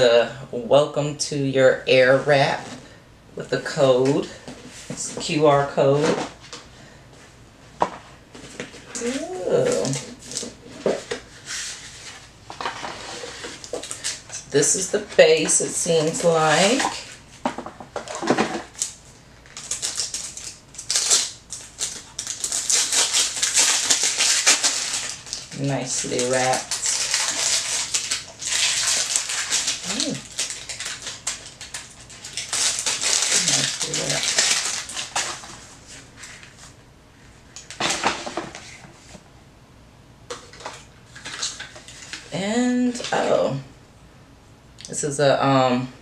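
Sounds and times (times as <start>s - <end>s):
plastic packaging rustling: 8.0s - 36.8s, 37.4s - 39.2s, 40.3s - 43.3s
plastic film crinkling: 8.4s - 17.2s, 18.0s - 36.8s, 40.5s - 42.4s.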